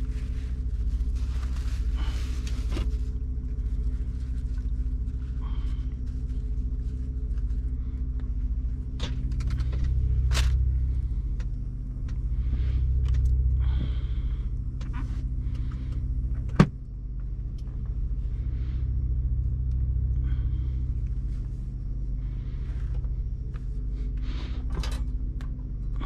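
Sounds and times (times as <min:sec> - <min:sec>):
plastic bag rustling: 0:00.0 - 0:07.7
diesel truck engine idling: 0:00.0 - 0:26.0.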